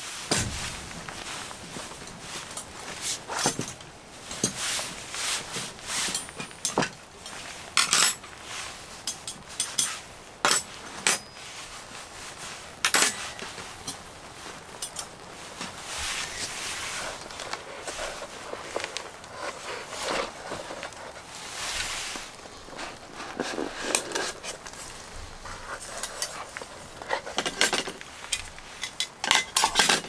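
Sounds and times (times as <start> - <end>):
cloth rustling: 0.0 - 30.0
metal cutlery clinking: 6.1 - 8.2, 9.1 - 11.4, 12.9 - 14.0, 27.3 - 30.0.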